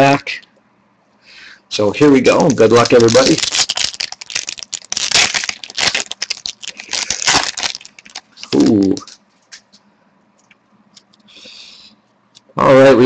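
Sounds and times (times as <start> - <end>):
wrapper crinkling and tearing: 2.3 - 9.2.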